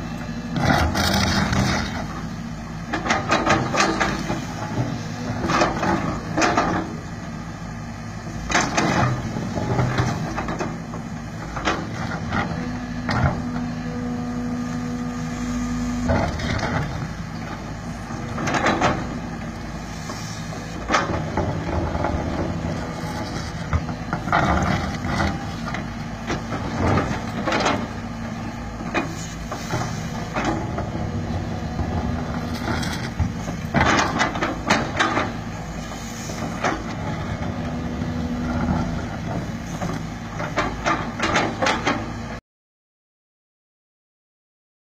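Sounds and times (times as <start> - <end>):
excavator diesel engine running: 0.0 - 42.4.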